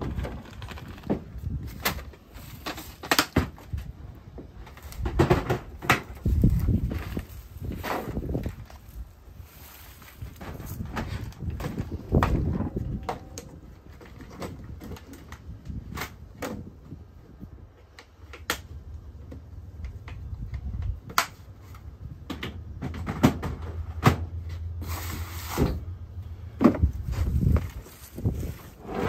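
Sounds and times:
sliding scrape: 0:27.2 - 0:29.0.

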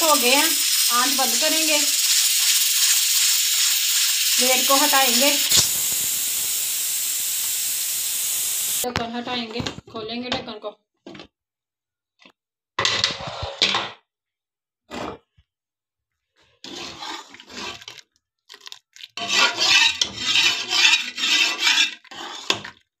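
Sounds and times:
spoon scraping in metal pot: 0:16.6 - 0:18.0, 0:19.2 - 0:22.7.

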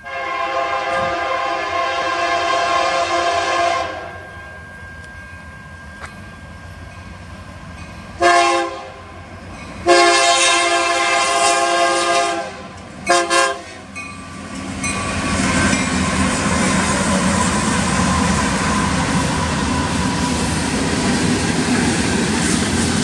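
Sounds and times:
locomotive air horn blasts: 0:00.0 - 0:04.3, 0:08.2 - 0:09.1, 0:09.8 - 0:13.9
diesel engines rumbling: 0:00.0 - 0:23.0
train wheels on rail: 0:00.0 - 0:23.0.

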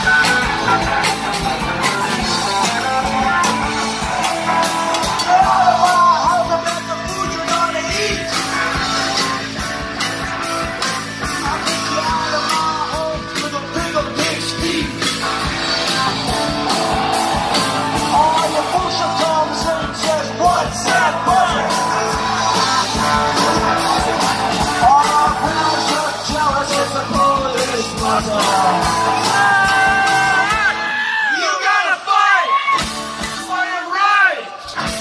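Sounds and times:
live rock band playing: 0:00.0 - 0:35.0.

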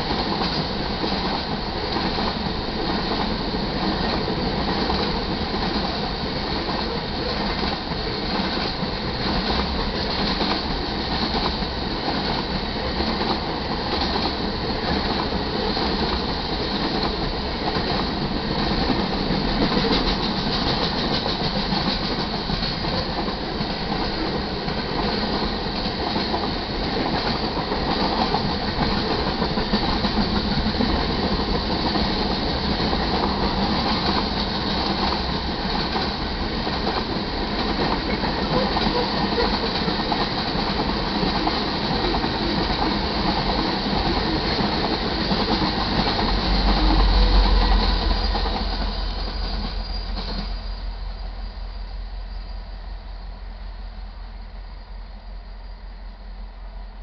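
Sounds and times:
steel wheels clacking over rail joints: 0:00.0 - 0:50.7.

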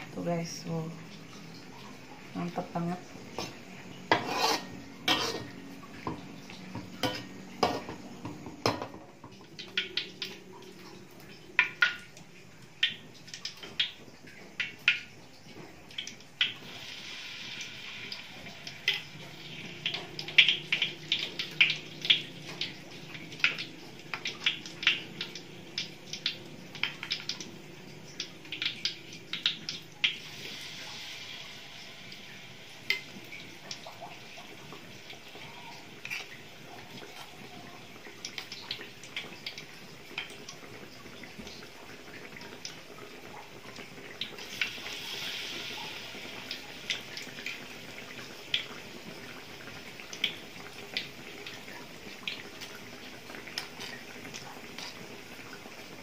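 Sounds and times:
oil sizzling: 0:00.0 - 0:56.0
ladle scraping metal wok: 0:03.4 - 0:05.6.

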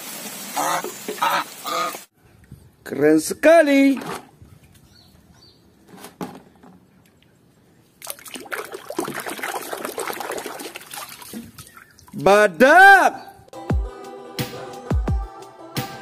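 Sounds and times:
water splashing in plastic tub: 0:08.0 - 0:12.2.

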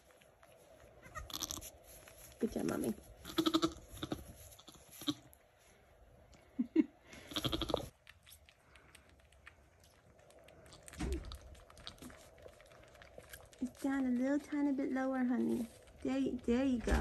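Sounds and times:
rustling and crunching of bedding: 0:00.0 - 0:06.3, 0:09.8 - 0:17.0
goat bleating: 0:01.0 - 0:01.7, 0:03.2 - 0:05.3, 0:07.2 - 0:07.9.

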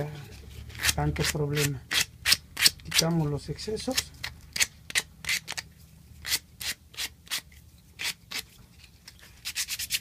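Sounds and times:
sandpaper scratching plastic pipe: 0:06.2 - 0:08.6, 0:09.3 - 0:10.0.

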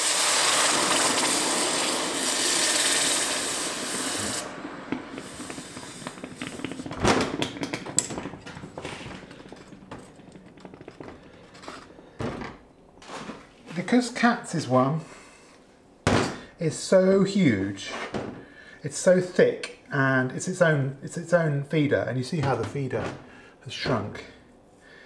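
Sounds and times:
hot metal steam hissing: 0:00.0 - 0:07.0
water crackling and bubbling: 0:02.7 - 0:11.6.

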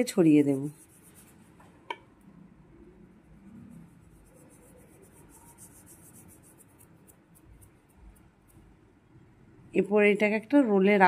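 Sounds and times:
dough scratching on rolling board: 0:00.0 - 0:01.7, 0:03.3 - 0:08.7.

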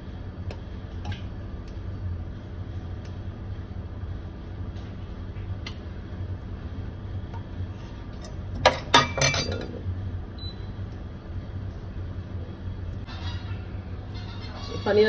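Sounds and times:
steady low hum: 0:00.0 - 0:15.0
metal spoon clinking on steel: 0:08.6 - 0:09.7.

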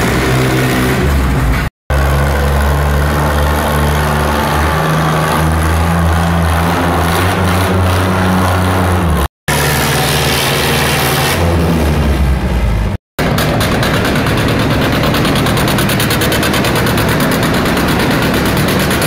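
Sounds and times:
tractor engines running: 0:00.0 - 0:19.0.

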